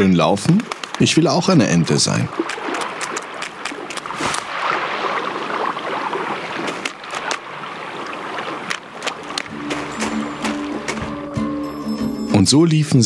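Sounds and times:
sharp clicks: 0:00.5 - 0:01.2, 0:02.3 - 0:04.4
stream water rushing and gurgling: 0:00.8 - 0:12.3.

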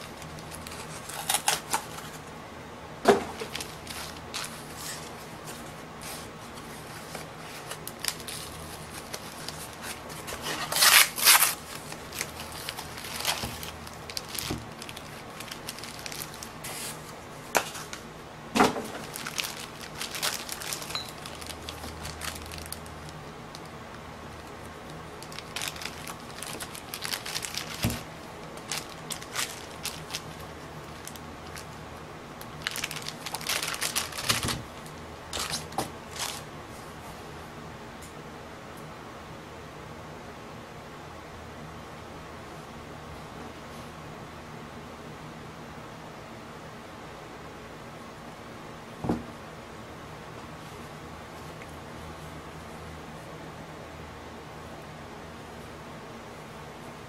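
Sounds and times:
plastic bags crinkling: 0:00.0 - 0:02.2, 0:03.2 - 0:18.0, 0:18.7 - 0:31.8, 0:32.4 - 0:36.5.

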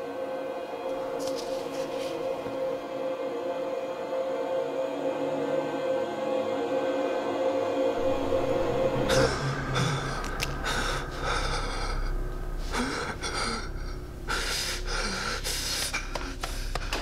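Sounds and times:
gasping breaths: 0:09.1 - 0:17.0.

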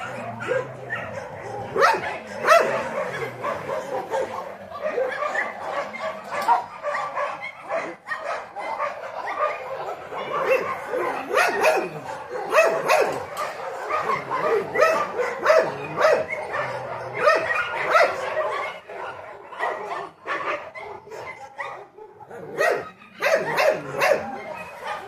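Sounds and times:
dog barking and yipping: 0:00.0 - 0:25.0.

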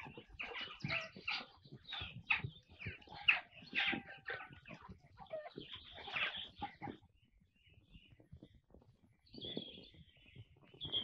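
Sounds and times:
poultry clucking: 0:00.0 - 0:07.4.

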